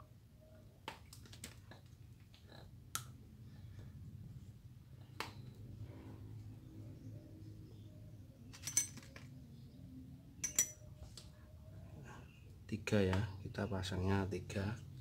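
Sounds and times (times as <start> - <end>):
faint low hum: 0.0 - 15.0
small metal parts clinking: 8.5 - 9.4, 10.4 - 10.8.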